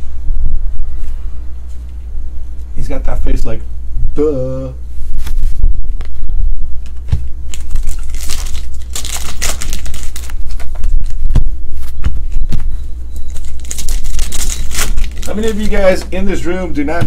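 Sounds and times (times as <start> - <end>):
steady low hum: 0.0 - 17.0
cards rustling and clicking: 6.8 - 11.2, 13.3 - 16.1
foil wrapper tearing and crinkling: 7.5 - 11.2, 13.3 - 16.0.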